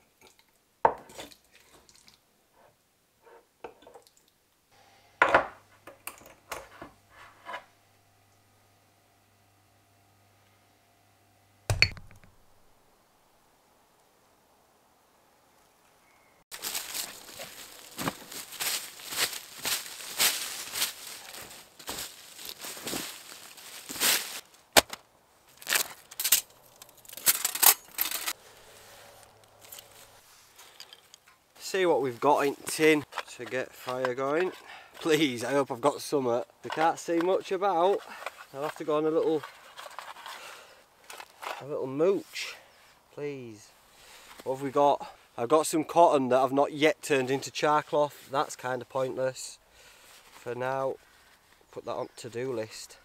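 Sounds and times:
glass jar lid knocking shut: 11.7s - 12.3s
wooden spoon scraping a mortar: 36.6s - 40.5s.

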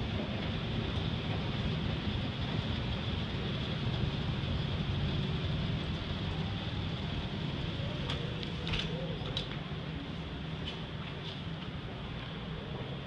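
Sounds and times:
escalator rumble: 0.0s - 13.0s.

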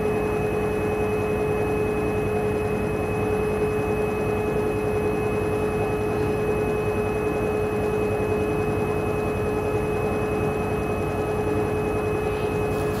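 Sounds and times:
washing machine motor whine: 0.0s - 13.0s.

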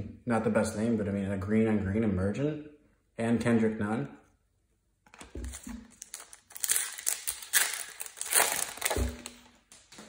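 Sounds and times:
foil wrapper crinkling: 5.1s - 10.0s.

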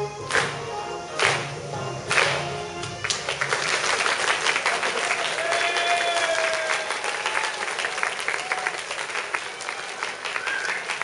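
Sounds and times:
dance music held tone: 0.0s - 3.1s
crowd applauding: 2.1s - 11.0s.

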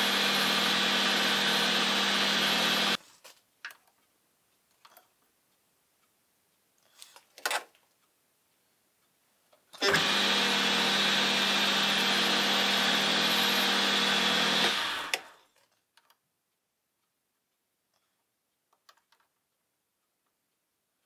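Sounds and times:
lathe winding down: 0.0s - 3.0s, 9.8s - 15.4s
metal lathe humming: 0.0s - 3.0s, 9.8s - 15.3s.

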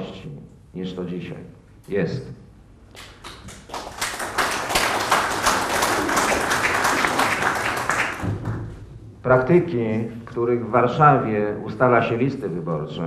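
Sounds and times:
audience applauding: 3.0s - 8.8s.

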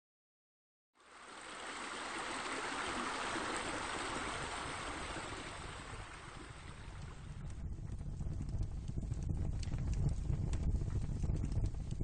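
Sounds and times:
running water: 1.0s - 7.5s.

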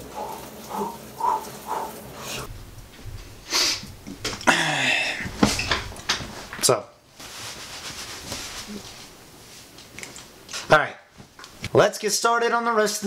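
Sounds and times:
man gasping: 3.5s - 5.3s.

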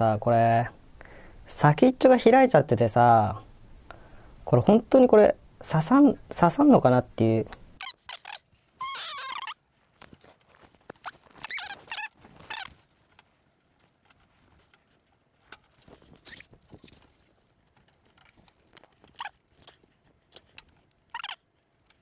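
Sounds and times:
short scratchy squeaks: 7.8s - 9.6s, 10.9s - 13.1s, 15.8s - 17.3s, 18.8s - 21.6s.

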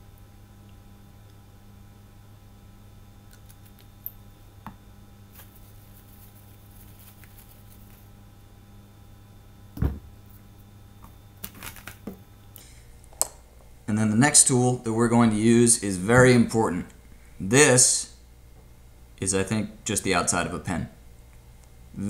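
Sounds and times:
steady low hum: 0.0s - 22.0s
paper towel rustling: 5.3s - 8.1s
low thump: 9.8s - 10.1s.

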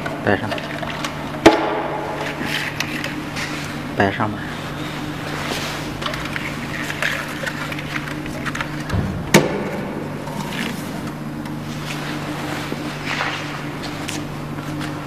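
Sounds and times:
cable handling clicks and rustles: 0.0s - 1.2s, 5.5s - 9.1s
steady low hum: 0.0s - 15.0s.

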